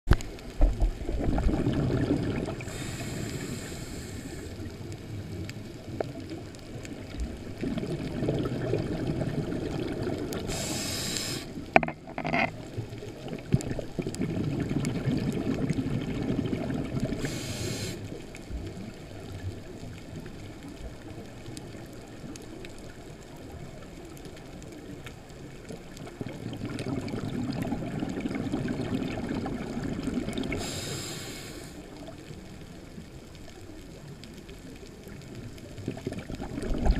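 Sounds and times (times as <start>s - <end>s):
bubbling exhalations underwater: 0.7s - 2.9s, 7.4s - 11.1s, 13.2s - 17.3s, 26.1s - 30.8s, 35.7s - 36.9s
hissing regulator inhalations: 2.6s - 4.7s, 10.4s - 11.6s, 17.2s - 18.1s, 30.5s - 31.9s.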